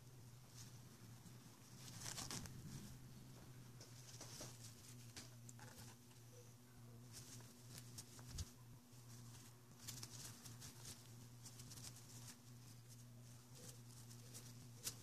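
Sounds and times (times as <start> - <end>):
steady low hum: 0.0 - 15.0
cloth wiping rustling and clicks: 1.6 - 6.1.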